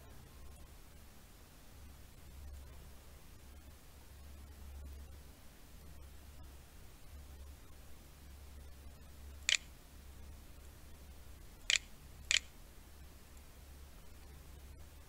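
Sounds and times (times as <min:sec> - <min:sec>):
low steady hum: 0:00.0 - 0:15.0
computer mouse clicking: 0:11.7 - 0:12.5.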